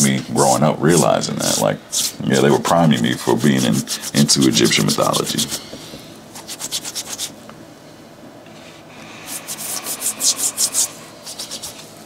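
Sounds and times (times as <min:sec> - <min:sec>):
brush scrubbing a sneaker: 0:00.9 - 0:05.7, 0:06.4 - 0:07.4, 0:09.3 - 0:11.9.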